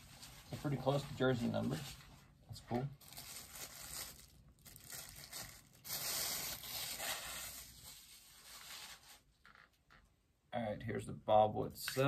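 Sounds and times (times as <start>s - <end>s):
packaging tearing and crinkling: 3.0s - 8.8s.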